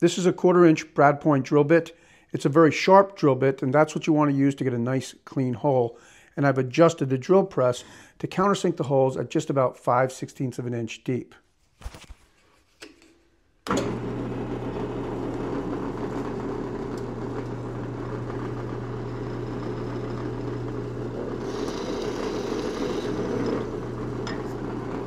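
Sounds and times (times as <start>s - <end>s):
drill bit boring into wood: 13.7s - 25.0s
drill press motor humming: 13.7s - 25.0s.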